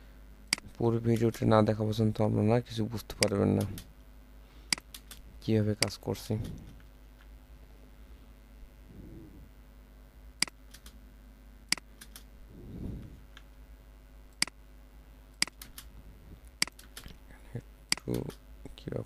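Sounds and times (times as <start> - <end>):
low steady hum: 0.0 - 19.0
keyboard and mouse clicking: 4.7 - 5.2, 10.4 - 11.0, 11.7 - 12.3, 15.4 - 15.9, 16.6 - 17.2
soft low sounds: 5.3 - 10.4, 11.1 - 14.1, 15.0 - 18.9.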